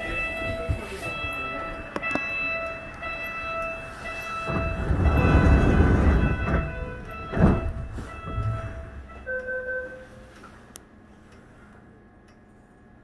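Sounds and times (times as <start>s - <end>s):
low rumble: 4.5s - 9.4s.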